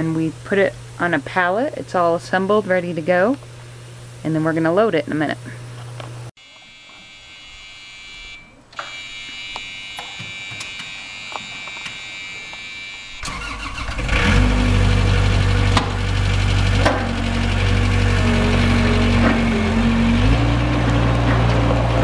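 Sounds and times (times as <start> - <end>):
high warning tone: 6.4 - 13.5, 17.0 - 20.6
loader engine starting and running: 8.7 - 22.0.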